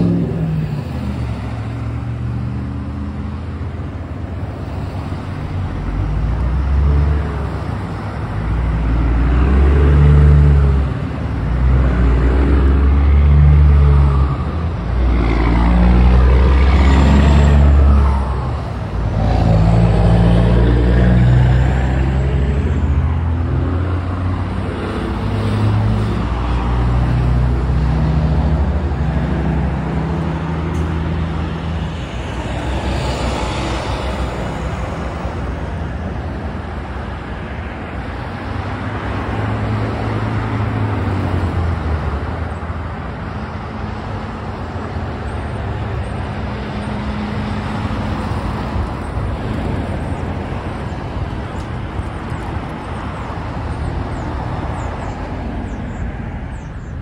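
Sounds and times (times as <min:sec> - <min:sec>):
road traffic passing: 0:00.0 - 0:57.0.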